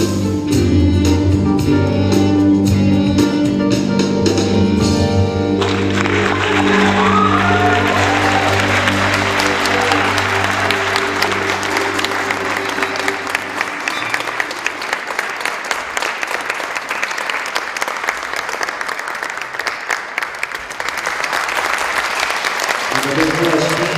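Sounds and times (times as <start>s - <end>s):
music final held chord: 5.6s - 14.8s
audience applauding and cheering: 5.6s - 23.9s.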